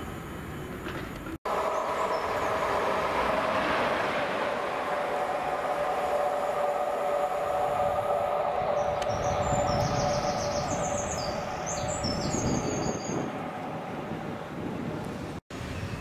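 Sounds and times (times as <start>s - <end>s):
diesel locomotive engine: 0.0s - 16.0s.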